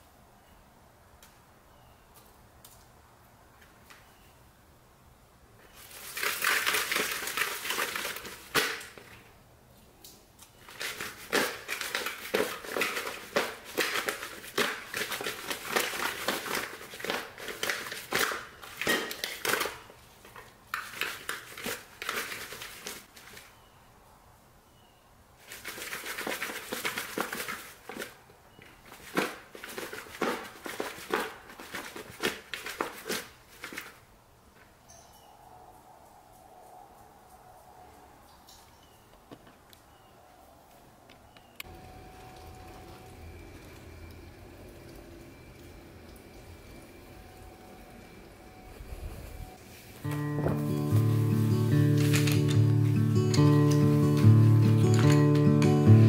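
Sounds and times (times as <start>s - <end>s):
salad and croutons tossed in bowl: 49.7s - 53.1s.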